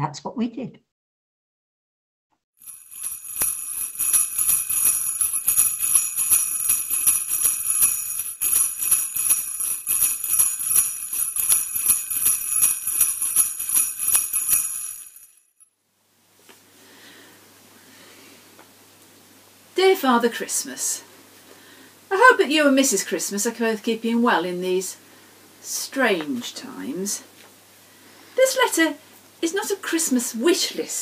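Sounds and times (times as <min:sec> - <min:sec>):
sleigh bells shaken: 0:02.6 - 0:15.5.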